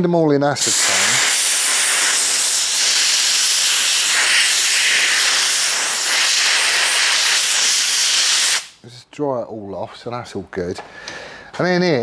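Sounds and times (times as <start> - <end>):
compressed air blow gun hissing: 0.6 - 8.8.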